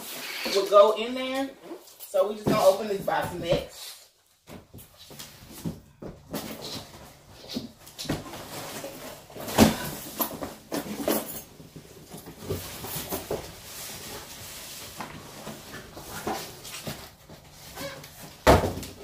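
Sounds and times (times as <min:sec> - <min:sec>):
carton thumps: 0:15.5 - 0:19.0.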